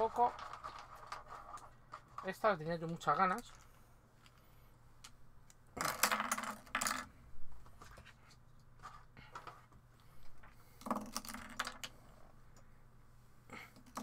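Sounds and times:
plastic parts clinking and clattering: 0.0s - 4.4s.

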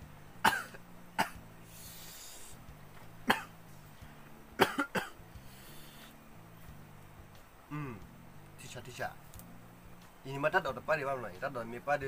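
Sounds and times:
person coughing: 0.5s - 1.4s, 4.6s - 5.2s.

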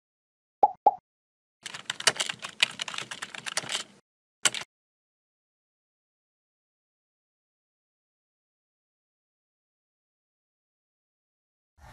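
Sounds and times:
keyboard key clicks: 4.5s - 4.7s.

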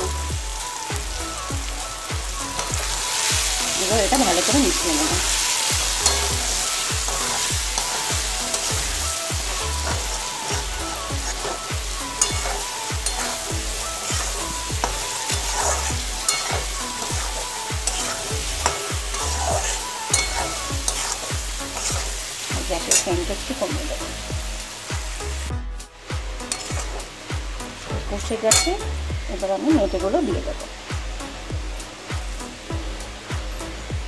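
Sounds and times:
oil sizzling: 0.0s - 34.0s
spatula scraping in a pan: 2.6s - 23.7s, 26.5s - 27.1s.

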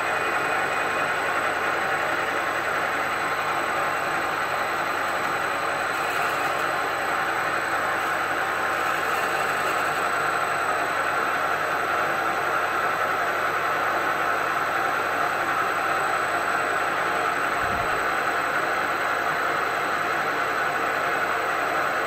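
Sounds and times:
milling machine drilling: 3.4s - 7.0s, 7.8s - 10.1s.

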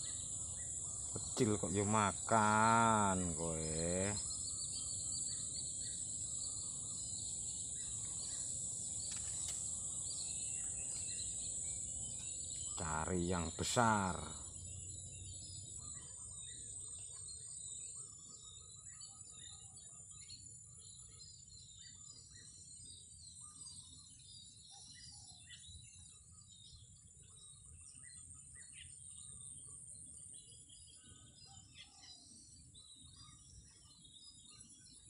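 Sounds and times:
high-pitched insect drone: 0.0s - 21.1s
bird chirps: 0.0s - 35.0s.

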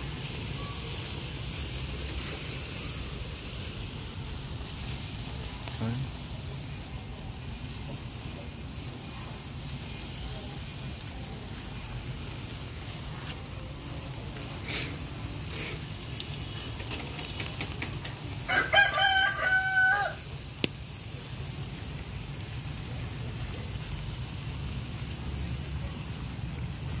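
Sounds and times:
rooster crowing: 18.4s - 20.3s.

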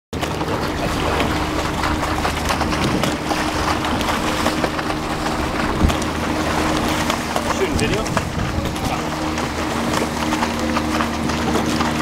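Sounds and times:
low steady hum: 0.2s - 12.0s
water and wind rushing: 0.2s - 12.0s.

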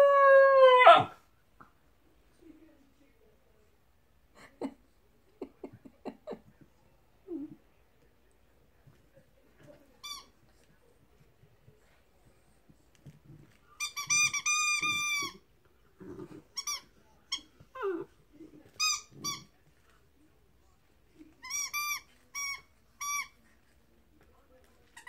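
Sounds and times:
muffled chewing and rustling: 6.4s - 25.0s
squeaky dog toy squeaking: 13.8s - 15.4s, 21.4s - 23.4s.

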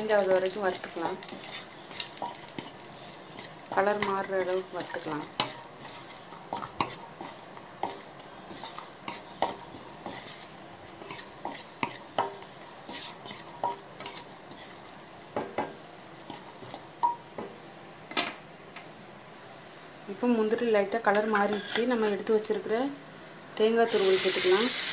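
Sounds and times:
spatula knocking and scraping pan: 0.0s - 18.3s, 21.1s - 22.3s
faint sizzle: 0.0s - 24.9s.

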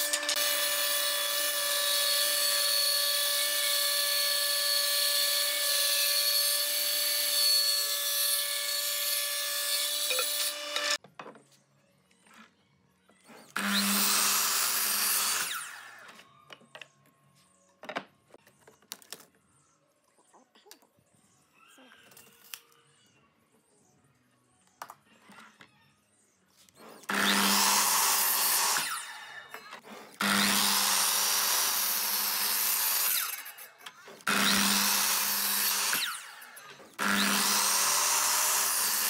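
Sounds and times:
table saw cutting wood: 0.0s - 11.0s, 13.3s - 16.2s, 26.8s - 39.0s
miter saw running: 34.2s - 39.0s.

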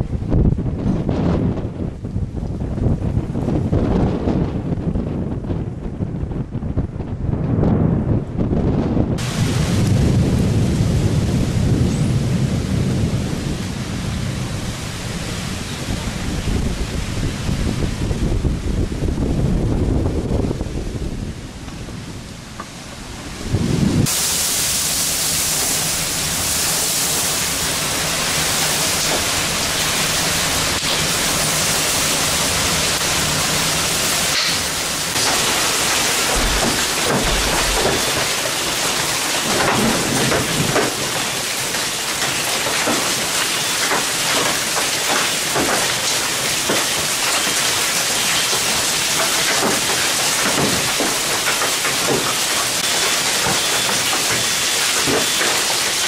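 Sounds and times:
low rumble: 0.0s - 24.8s, 25.4s - 38.4s
heavy rain pouring: 8.1s - 56.0s.

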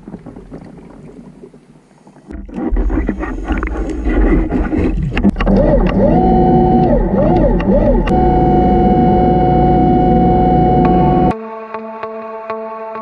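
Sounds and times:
underwater motor and water rumble: 0.0s - 11.3s
clicks: 5.1s - 11.3s
warbling pitched tone: 5.6s - 11.3s.

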